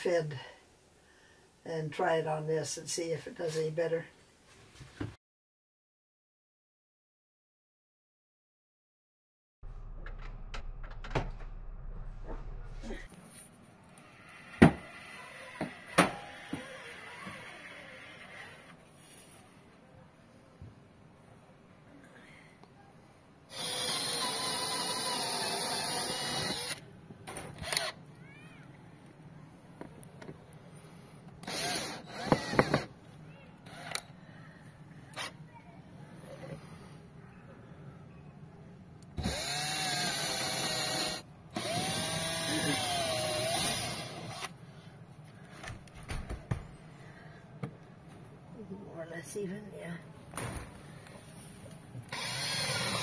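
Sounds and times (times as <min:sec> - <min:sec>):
cordless drill running: 0:23.5 - 0:26.8, 0:27.6 - 0:28.0, 0:31.4 - 0:32.9, 0:39.2 - 0:44.6, 0:52.1 - 0:53.0.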